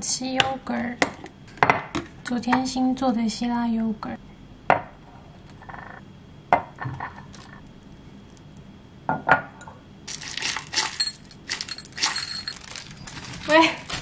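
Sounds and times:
granola rattling into bowl: 0:10.1 - 0:14.0.

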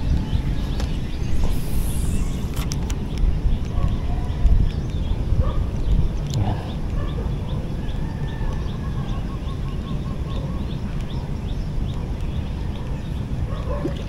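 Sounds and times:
bird chirping: 0:00.0 - 0:14.0
low rumble: 0:05.9 - 0:07.0.

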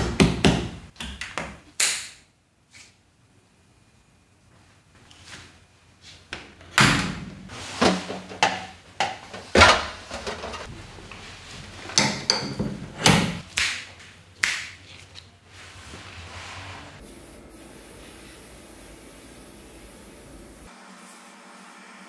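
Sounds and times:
hard parts knocking and clanking: 0:11.8 - 0:13.4.

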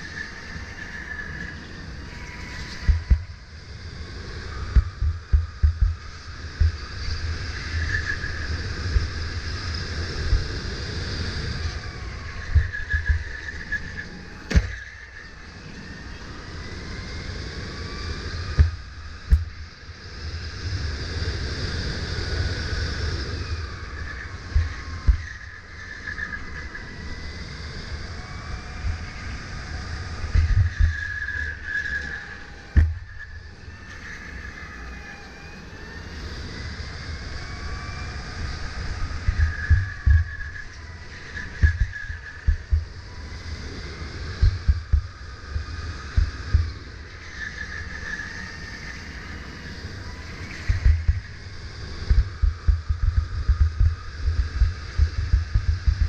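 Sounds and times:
electric motor whining: 0:00.0 - 0:56.0
low rumble: 0:01.9 - 0:14.8, 0:17.6 - 0:21.1, 0:23.6 - 0:25.4, 0:38.8 - 0:43.3, 0:43.9 - 0:47.0, 0:50.6 - 0:56.0.

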